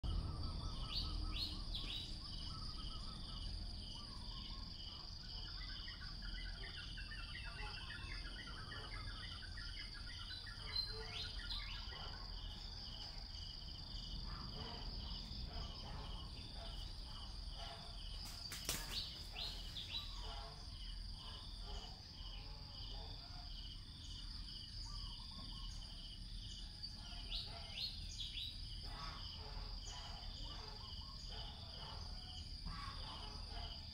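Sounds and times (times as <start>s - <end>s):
bird chirps: 0.0s - 22.0s
insects trilling: 0.0s - 33.9s
pulsed insect chirp: 0.0s - 33.9s.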